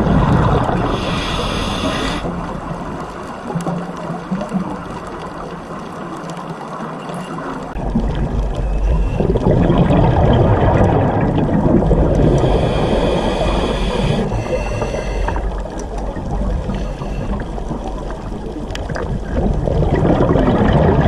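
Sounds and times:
diver's exhaled bubbles gurgling: 0.0s - 6.1s, 7.7s - 21.0s
deep underwater rumble: 0.0s - 21.0s
underwater water noise: 0.0s - 21.0s.

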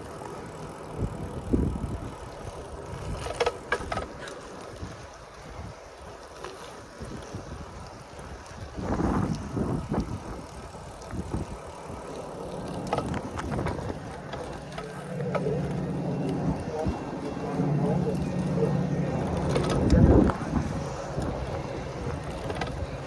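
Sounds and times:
bicycle tyres on wet pavement: 0.0s - 23.0s
wind on microphone: 7.0s - 14.2s, 19.1s - 23.0s
steady low hum: 8.8s - 23.0s.

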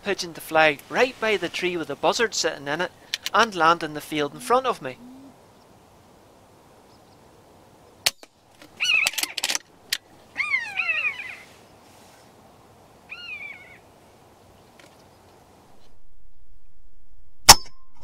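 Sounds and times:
buzzard mewing: 4.2s - 5.4s.

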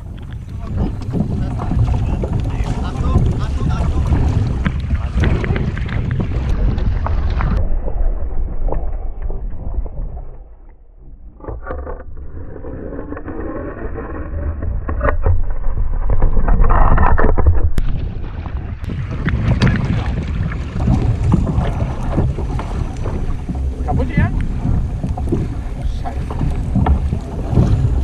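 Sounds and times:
wind buffeting microphone: 0.0s - 10.2s, 14.7s - 28.0s
waves slapping against kayaks: 0.0s - 10.6s, 17.7s - 28.0s.

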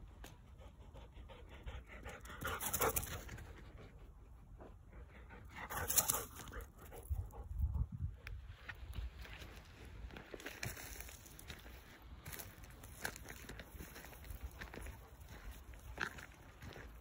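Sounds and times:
dog panting: 0.4s - 7.9s.

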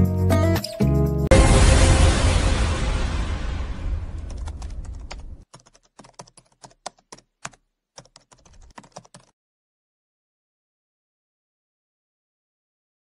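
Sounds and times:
logo music: 0.0s - 4.2s
keyboard typing clicks: 4.3s - 9.3s.

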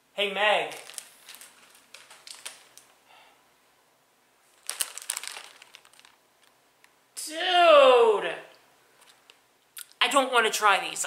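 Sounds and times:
plastic wrapper crinkling: 0.6s - 3.0s, 4.5s - 6.9s, 9.0s - 9.4s.

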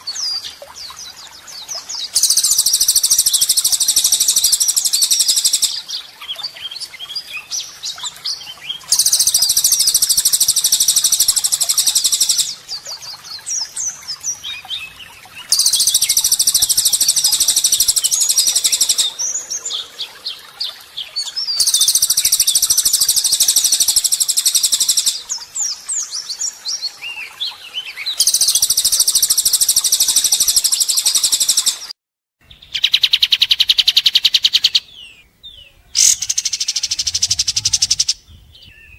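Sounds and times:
songbird harsh rapid trills: 2.1s - 5.9s, 8.8s - 13.4s, 15.4s - 19.9s, 21.5s - 25.4s, 28.2s - 31.9s, 36.0s - 38.2s
bird whistles and chirps: 21.5s - 25.8s.

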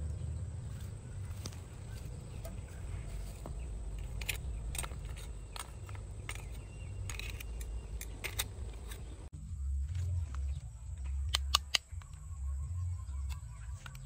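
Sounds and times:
low steady rumble: 0.0s - 14.0s
snail shells clattering against tongs: 3.8s - 9.2s.

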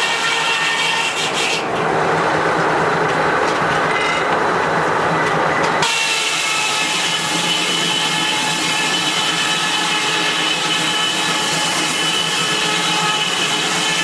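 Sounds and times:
circular saw rasping through log: 0.0s - 1.7s, 5.8s - 14.0s.

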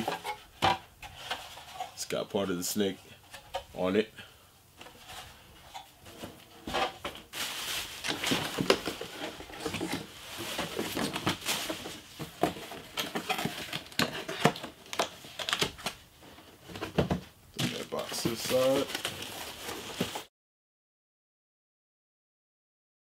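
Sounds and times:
bubble wrap crinkling: 7.1s - 16.0s, 17.6s - 20.3s.

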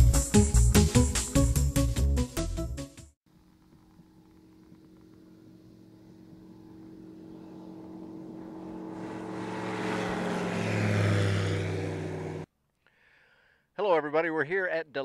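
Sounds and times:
aircraft engine and propeller: 3.4s - 12.5s.

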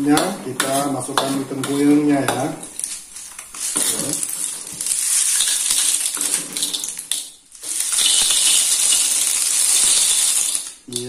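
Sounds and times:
spice paste sizzling: 0.0s - 11.0s
snail shells clattering in a pan: 2.8s - 11.0s.

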